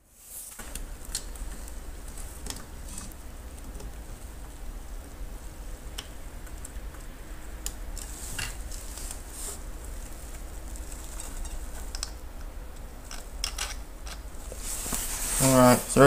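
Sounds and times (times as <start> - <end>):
steady low hum: 0.0 - 16.0
plastic parts clicking and rattling: 13.0 - 14.3.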